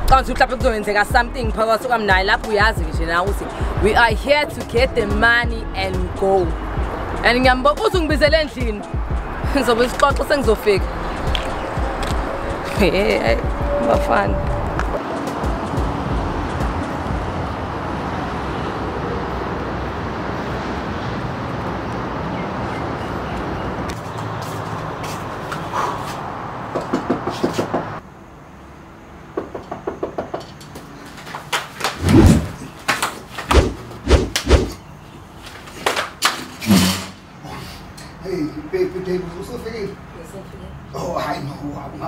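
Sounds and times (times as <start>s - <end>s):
knocking on a door: 29.4s - 30.4s.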